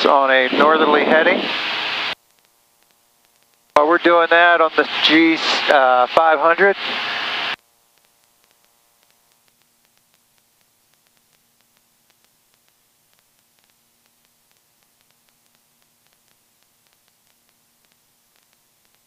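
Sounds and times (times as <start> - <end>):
faint electrical hum: 0.0 - 19.0
faint clicks: 7.9 - 19.0.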